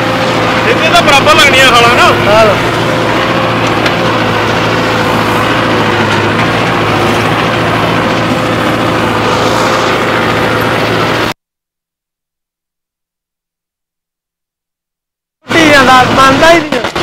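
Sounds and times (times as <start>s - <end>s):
tractor diesel engine running: 0.0s - 11.4s, 15.4s - 17.0s.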